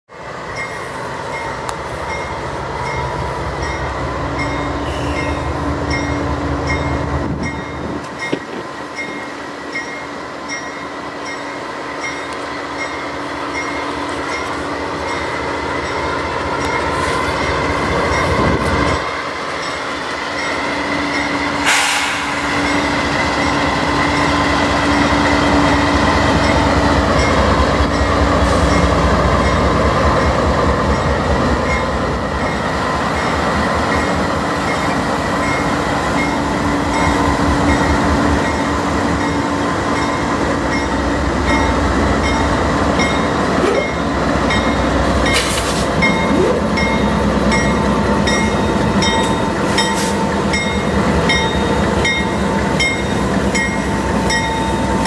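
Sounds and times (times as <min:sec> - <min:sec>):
locomotive engines running: 0:12.2 - 0:55.0
sharp metallic clank: 0:21.6 - 0:22.8
steel wheels rolling on rails: 0:40.0 - 0:55.0.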